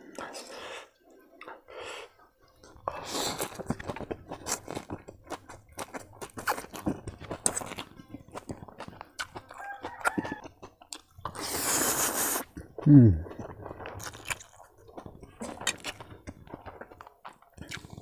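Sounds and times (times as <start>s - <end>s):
chewing with wet mouth clicks: 2.6s - 18.0s
person slurping noodles: 11.3s - 13.5s.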